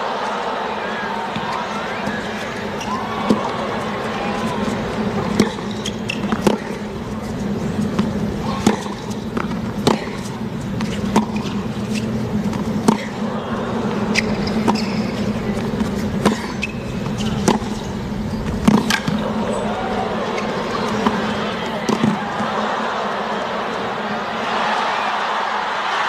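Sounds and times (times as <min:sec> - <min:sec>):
stadium background noise: 0:00.0 - 0:26.0
tennis ball racket hits: 0:01.3 - 0:07.0, 0:07.7 - 0:13.3, 0:13.9 - 0:19.4, 0:20.5 - 0:22.6
ball bouncing on hard court: 0:05.3 - 0:06.8, 0:07.9 - 0:10.2, 0:14.2 - 0:17.8, 0:18.4 - 0:19.3.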